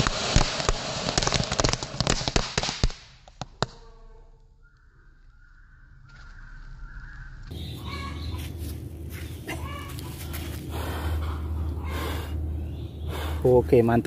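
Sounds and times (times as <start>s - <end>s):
steady low rumble: 4.4s - 14.0s.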